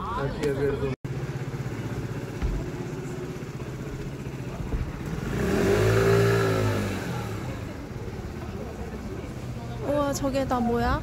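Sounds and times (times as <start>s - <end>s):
engine pulsing hum: 0.7s - 11.0s
vehicle passing close: 3.0s - 9.5s.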